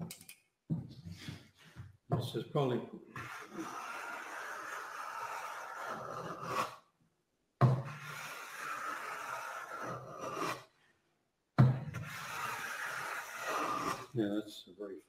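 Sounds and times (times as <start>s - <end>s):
hand plane scraping wood: 3.1s - 6.8s, 7.7s - 10.7s, 11.9s - 14.1s.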